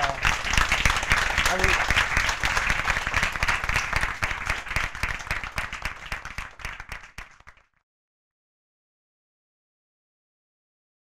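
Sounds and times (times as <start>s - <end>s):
audience applauding: 0.0s - 7.7s.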